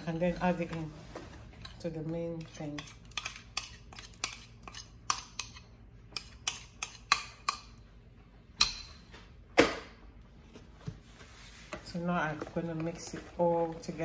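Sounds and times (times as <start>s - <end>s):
metal spoon scraping ceramic bowl: 2.4s - 7.8s.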